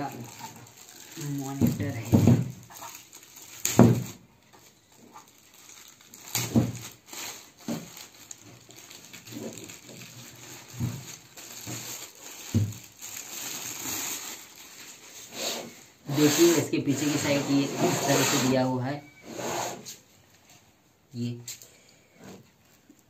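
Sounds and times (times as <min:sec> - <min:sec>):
plastic bag crinkling: 0:00.0 - 0:17.2.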